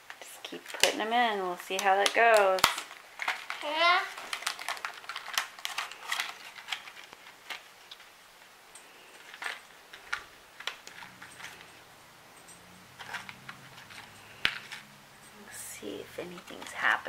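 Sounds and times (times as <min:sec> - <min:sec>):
plastic blister pack clicking: 0:01.7 - 0:08.0.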